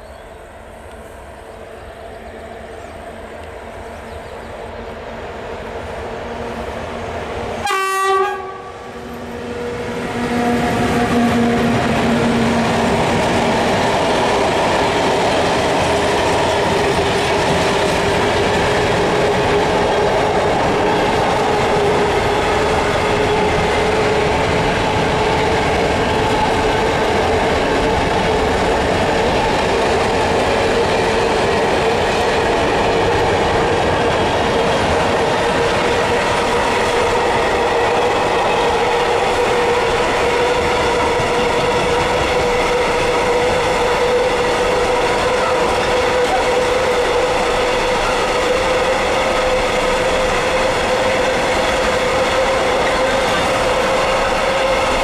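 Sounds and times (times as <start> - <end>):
electric locomotive approaching: 0.0 - 55.0
train horn: 7.5 - 12.7, 39.3 - 55.0.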